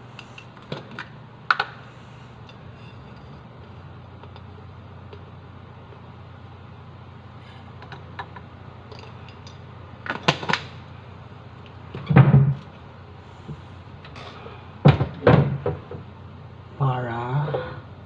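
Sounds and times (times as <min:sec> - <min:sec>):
dull thump with rattle: 0:12.0 - 0:12.6, 0:14.8 - 0:16.0.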